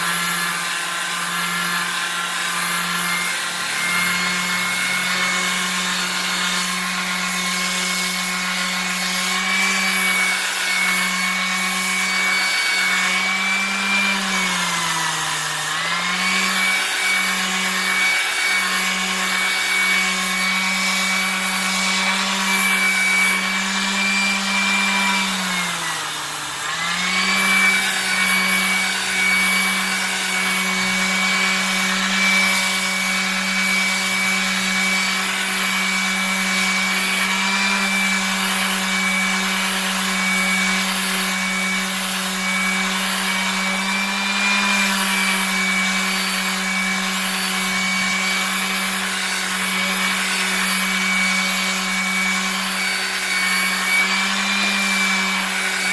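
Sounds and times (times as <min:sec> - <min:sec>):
sandpaper rubbing on metal: 0:00.0 - 0:14.6
electric sander humming: 0:00.0 - 0:55.9.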